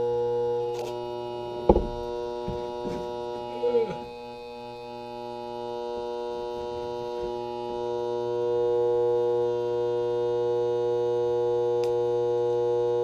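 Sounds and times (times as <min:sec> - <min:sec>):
transformer humming loudly: 0:00.0 - 0:09.6.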